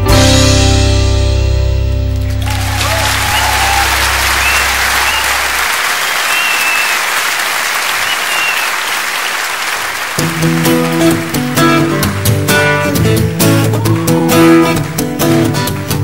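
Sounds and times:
audience applauding and cheering: 0:02.2 - 0:16.0
whistles from audience: 0:02.5 - 0:10.2.

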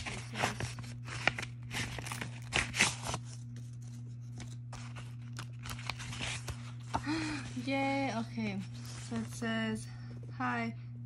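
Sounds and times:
paper and tape crinkling: 0:00.0 - 0:07.4
low hum: 0:00.0 - 0:11.0.

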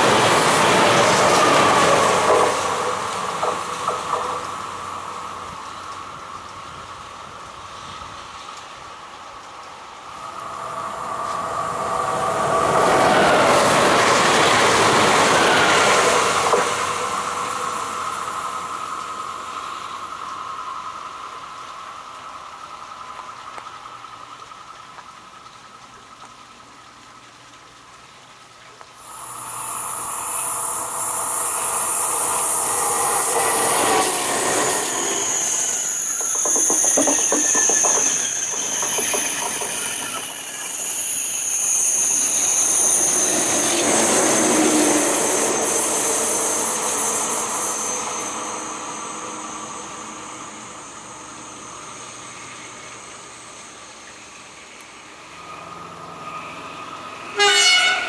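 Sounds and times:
high-speed train rushing past: 0:00.0 - 0:24.8, 0:29.0 - 0:58.0
train passing: 0:00.0 - 0:27.4, 0:28.4 - 0:58.0
rapid wheel clicks on rail joints: 0:01.3 - 0:04.7, 0:34.1 - 0:40.9.

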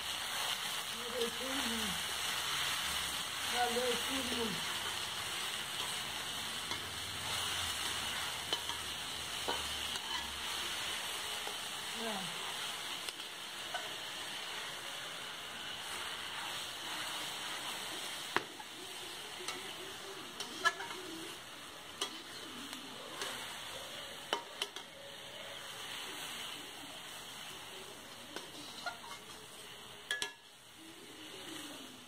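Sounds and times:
leaves sizzling in a pan: 0:00.0 - 0:32.0
metal spatula clinking on pan: 0:08.5 - 0:10.3, 0:30.1 - 0:30.5.

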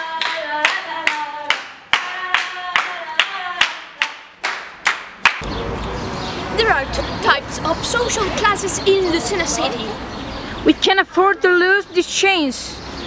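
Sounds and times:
rhythmic hand-clapping: 0:00.0 - 0:05.5
low street rumble: 0:00.0 - 0:13.0.

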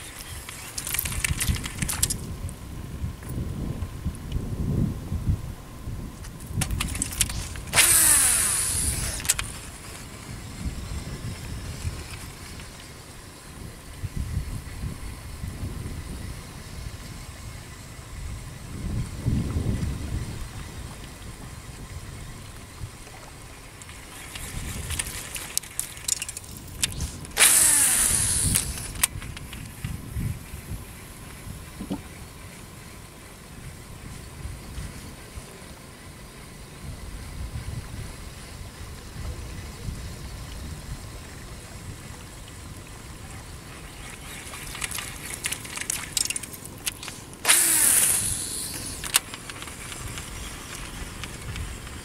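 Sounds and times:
fishing reel spool whirring: 0:00.0 - 0:02.3, 0:06.6 - 0:52.0
fishing reel clicks: 0:06.7 - 0:09.8, 0:24.2 - 0:29.8, 0:44.7 - 0:52.0
sharp reel click: 0:06.7 - 0:09.8, 0:25.5 - 0:29.8, 0:44.8 - 0:52.0.

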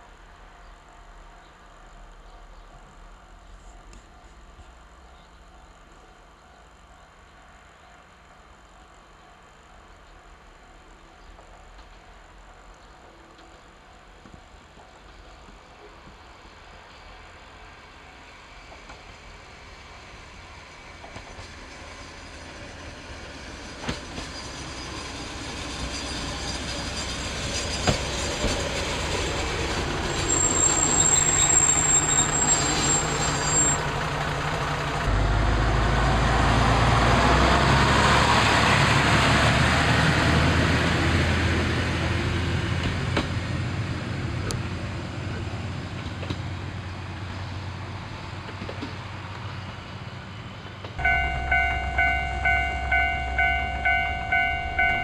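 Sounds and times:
diesel railcar on rails: 0:00.0 - 0:55.0
high wheel squeal: 0:24.0 - 0:28.6, 0:30.0 - 0:34.0, 0:51.0 - 0:55.0
low diesel engine note: 0:33.9 - 0:38.6, 0:51.0 - 0:55.0.

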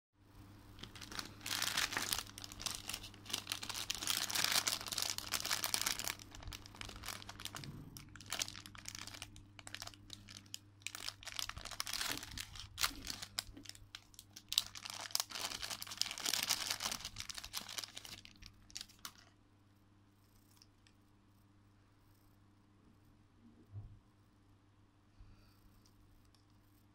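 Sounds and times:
low steady hum: 0:00.2 - 0:26.9
plastic bags crinkling: 0:00.8 - 0:19.3.

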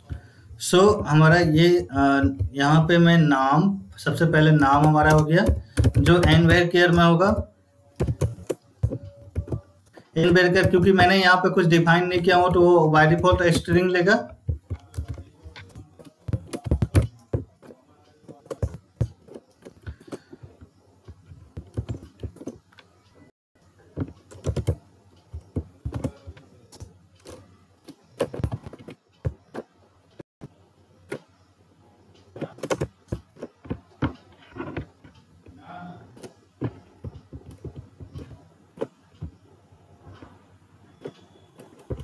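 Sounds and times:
typing on a keyboard: 0:04.1 - 0:23.1, 0:24.0 - 0:29.7, 0:32.3 - 0:34.2.

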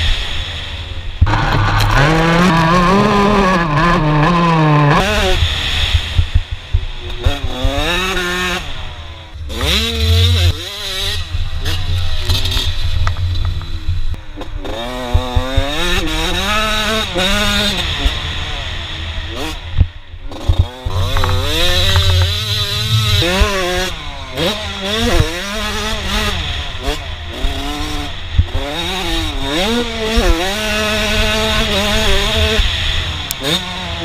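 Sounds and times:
motocross bike engine revving: 0:00.0 - 0:34.0.

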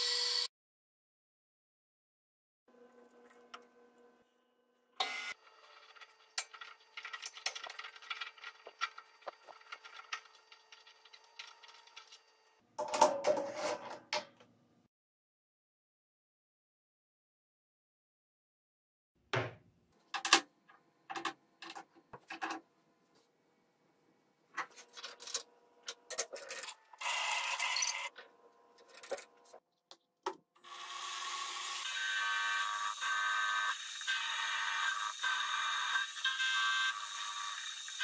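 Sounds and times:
milling machine cutting metal: 0:30.8 - 0:38.0.

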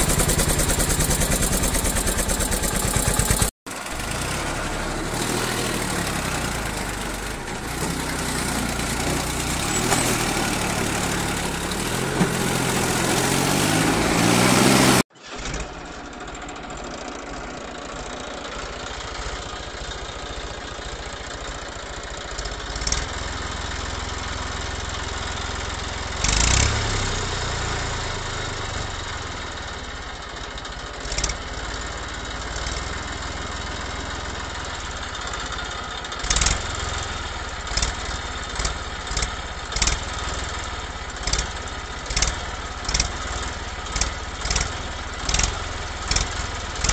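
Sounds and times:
engine revving: 0:00.0 - 0:15.8, 0:26.1 - 0:28.5
steady engine: 0:00.0 - 0:46.9.

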